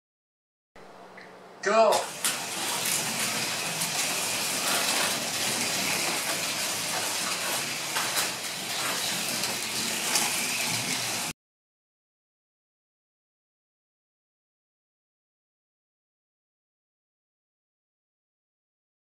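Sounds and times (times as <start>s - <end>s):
slot car motors whirring: 1.8s - 11.3s.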